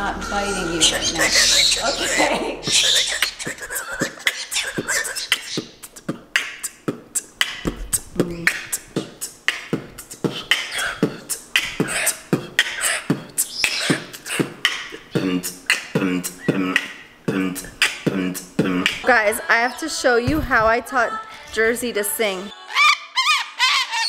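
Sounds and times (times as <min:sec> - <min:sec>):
person beatboxing: 0:01.1 - 0:19.2.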